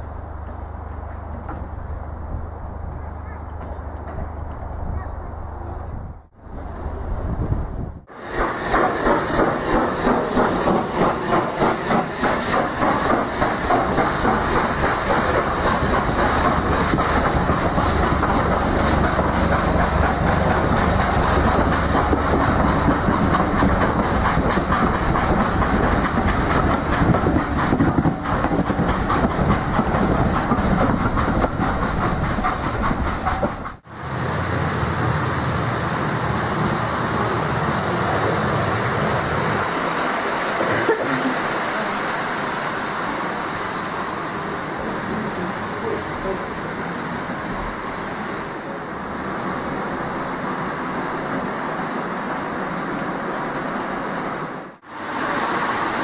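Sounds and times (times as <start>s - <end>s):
train coaches rumbling: 0.0s - 56.0s
steam locomotive beats: 8.0s - 48.1s
model train running: 8.2s - 32.2s, 54.8s - 56.0s
wheels clicking over rail joints: 8.4s - 33.9s.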